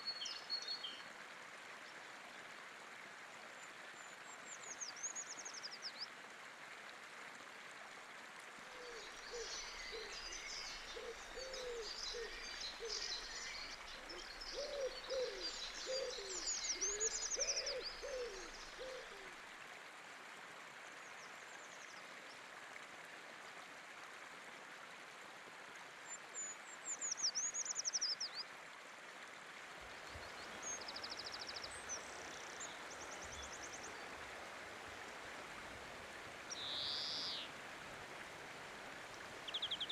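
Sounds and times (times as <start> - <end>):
low bird calls: 8.8 - 19.3
songbirds singing: 8.9 - 19.3, 29.9 - 35.3, 35.9 - 37.6, 39.2 - 39.9
river rushing: 29.6 - 39.9.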